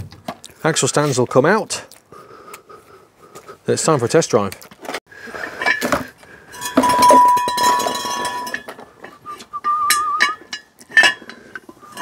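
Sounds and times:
metal clinking and scraping: 0:04.9 - 0:12.0.

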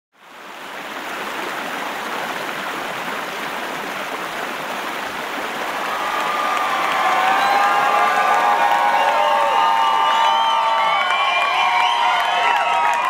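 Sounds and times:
crowd cheering and applauding: 0:05.6 - 0:13.0
crowd whooping and shouting: 0:05.7 - 0:13.0.

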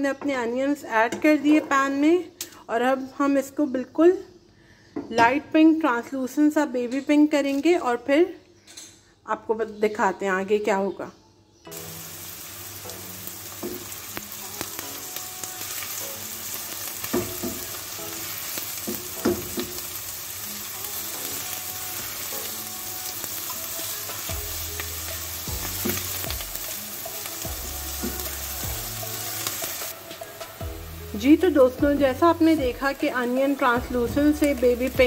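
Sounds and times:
onions sizzling in hot oil: 0:11.7 - 0:35.0.

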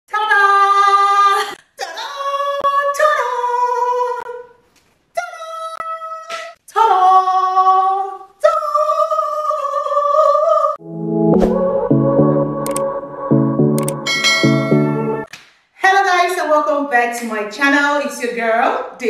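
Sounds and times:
woman singing unaccompanied: 0:00.1 - 0:04.5, 0:05.2 - 0:10.8.

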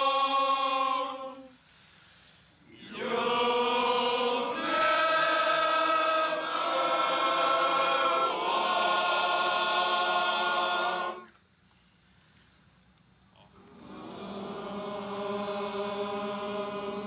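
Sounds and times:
men singing in chords: 0:00.0 - 0:01.5.

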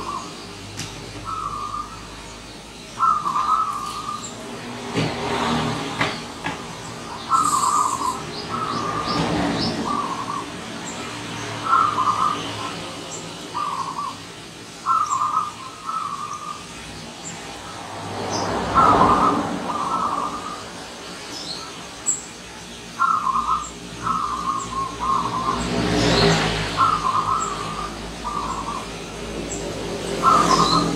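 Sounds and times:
small birds chirping: 0:00.0 - 0:04.7, 0:05.3 - 0:30.9
vehicle passing: 0:01.2 - 0:14.1, 0:15.2 - 0:21.2, 0:23.2 - 0:30.9
dove cooing: 0:03.0 - 0:04.2, 0:07.1 - 0:10.6, 0:11.6 - 0:12.8, 0:13.5 - 0:14.2, 0:18.7 - 0:20.6, 0:23.0 - 0:25.6, 0:26.7 - 0:28.9, 0:29.8 - 0:30.9.

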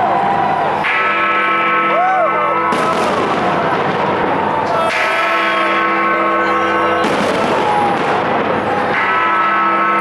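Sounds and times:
crowd voices: 0:00.0 - 0:10.0
fireworks banging and crackling: 0:02.7 - 0:05.5, 0:06.5 - 0:09.2.

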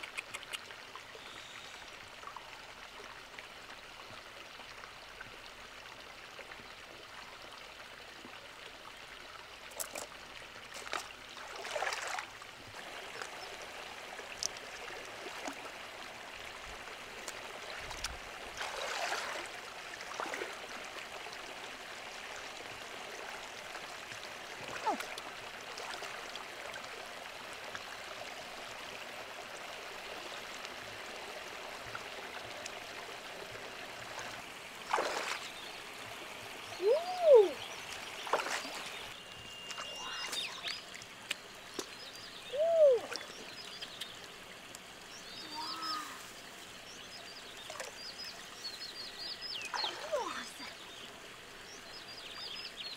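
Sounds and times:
river water running: 0:00.0 - 0:52.9
feet wading through water: 0:10.7 - 0:15.9, 0:16.7 - 0:20.8, 0:24.6 - 0:26.3, 0:34.0 - 0:35.9, 0:36.8 - 0:42.1, 0:49.6 - 0:50.6.

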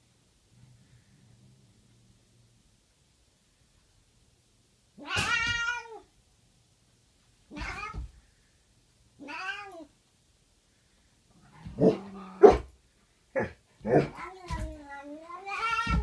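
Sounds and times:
cat yowling: 0:05.0 - 0:06.0.

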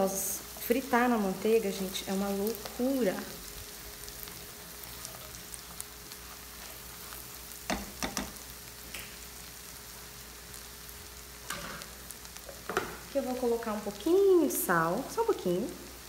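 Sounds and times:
butter sizzling in a frying pan: 0:00.0 - 0:16.0
spatula tapping a pan: 0:07.7 - 0:08.4.

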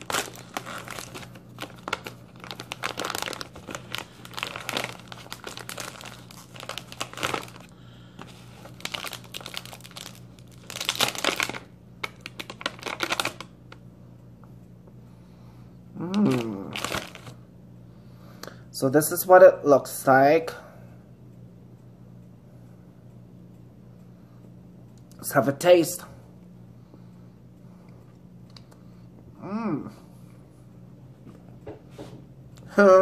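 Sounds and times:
plastic wrapper crinkling: 0:00.0 - 0:13.6, 0:16.1 - 0:17.4.

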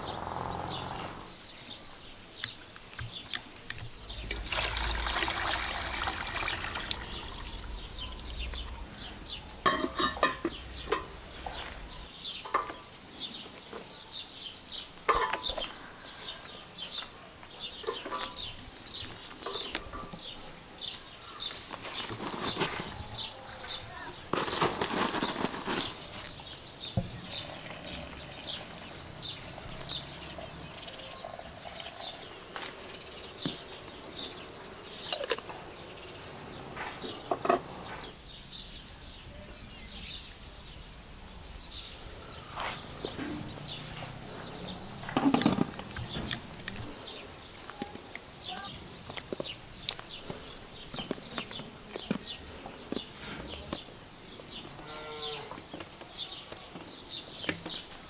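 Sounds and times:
hot water pouring into teapot: 0:04.2 - 0:07.7.

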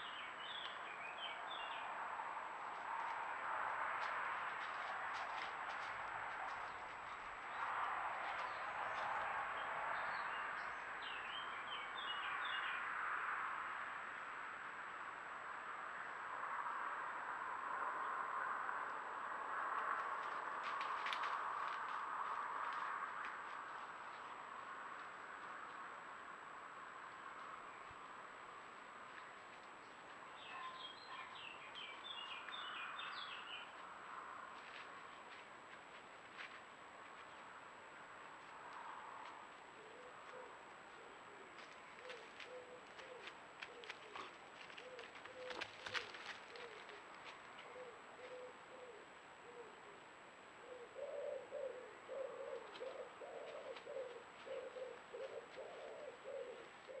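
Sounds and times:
small songbird singing: 0:30.3 - 0:33.7
pigeon cooing: 0:39.8 - 0:47.0, 0:47.6 - 0:50.0, 0:50.6 - 0:57.0.

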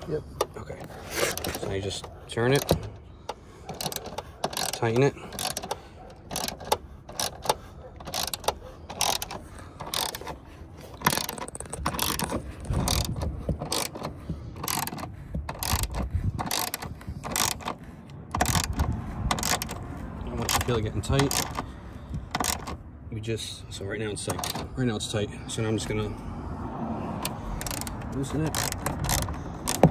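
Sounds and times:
hand ratchet clicking: 0:02.6 - 0:10.4, 0:11.0 - 0:21.7, 0:22.3 - 0:22.8, 0:24.3 - 0:24.7, 0:27.2 - 0:29.9.

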